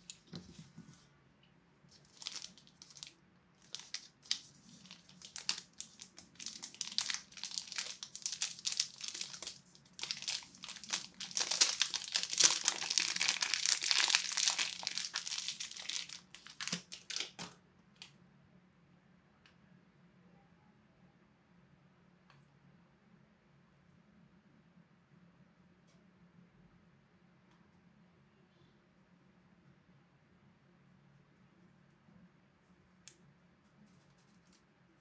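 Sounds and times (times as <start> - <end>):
plastic bag crinkling: 1.9 - 17.5.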